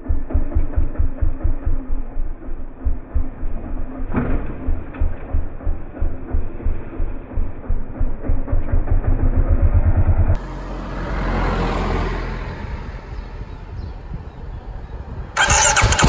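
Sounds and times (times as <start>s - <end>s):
motorcycle engine idling: 0.0s - 9.9s, 15.4s - 16.0s.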